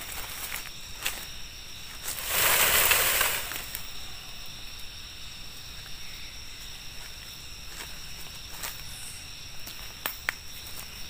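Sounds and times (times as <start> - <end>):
brief rustling hiss: 2.1 - 3.8.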